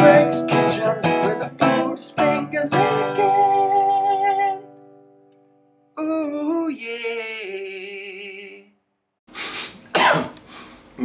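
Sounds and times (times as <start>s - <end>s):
man singing: 0.0s - 4.7s, 6.0s - 8.8s
strummed acoustic guitar: 0.0s - 5.0s.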